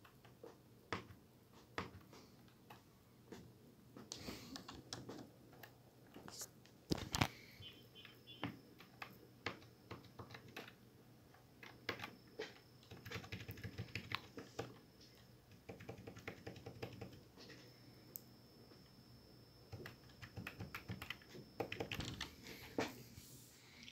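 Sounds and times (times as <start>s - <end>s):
mechanical keyboard typing: 8.8s - 10.8s, 11.6s - 14.8s, 15.5s - 17.3s, 19.7s - 22.3s.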